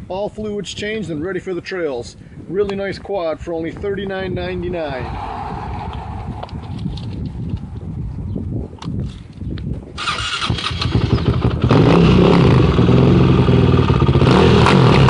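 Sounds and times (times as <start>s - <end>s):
atv engine starting: 10.0s - 15.0s.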